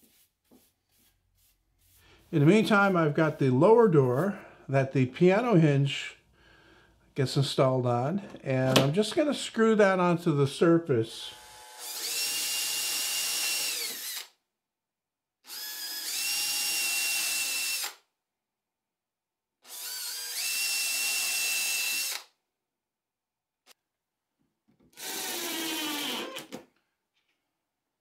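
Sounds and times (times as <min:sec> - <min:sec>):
cordless drill whining: 0:11.4 - 0:14.4, 0:15.5 - 0:18.0, 0:19.7 - 0:22.3, 0:24.9 - 0:26.6
drill driving a screw: 0:11.4 - 0:14.4, 0:15.5 - 0:18.0, 0:19.6 - 0:22.3, 0:24.9 - 0:26.6.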